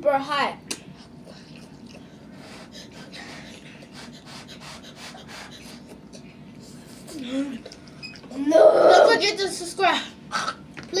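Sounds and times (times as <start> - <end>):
heavy mouth breathing: 1.0 - 7.2.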